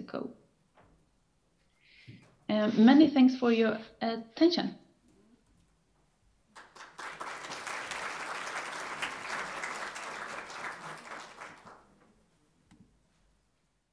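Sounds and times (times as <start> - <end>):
audience applauding: 6.5 - 12.1.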